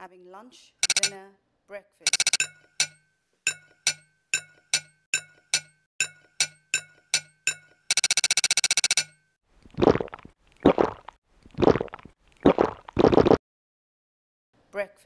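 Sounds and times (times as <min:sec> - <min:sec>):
glassy clinking pings: 0:02.1 - 0:08.2.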